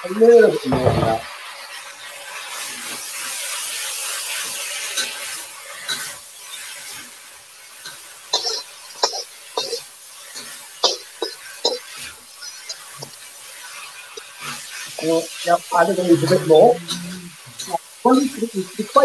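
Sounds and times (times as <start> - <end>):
noodles sizzling in a wok: 0.0 - 19.0
metal spatula scraping wok: 4.3 - 17.8.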